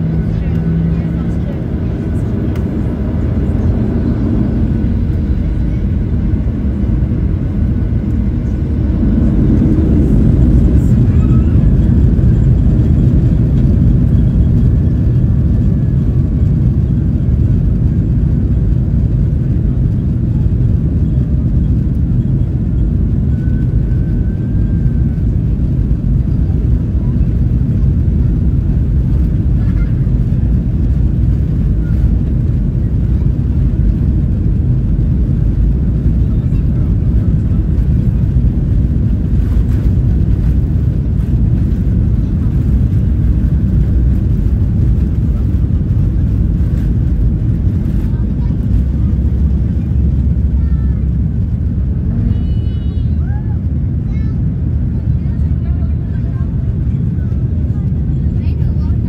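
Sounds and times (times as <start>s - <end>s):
airliner cabin engine rumble: 0.0s - 59.0s.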